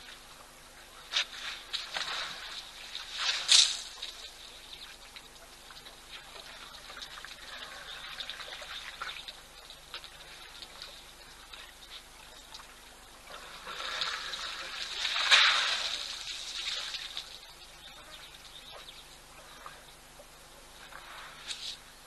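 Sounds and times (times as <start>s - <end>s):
water splashing and pouring: 1.1s - 17.4s.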